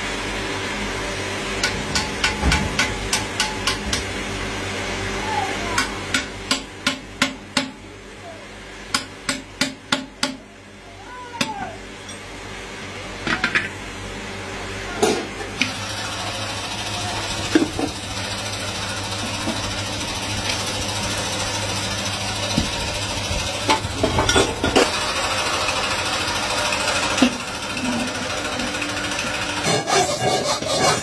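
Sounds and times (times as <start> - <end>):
steady mechanical hum: 0.0 - 31.0
metal clanks and knocks: 1.6 - 4.1.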